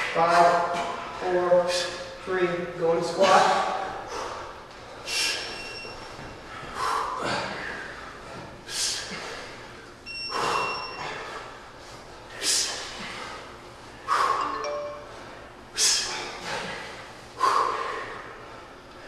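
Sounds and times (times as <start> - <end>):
man breathing hard: 3.2 - 14.5, 15.7 - 19.0.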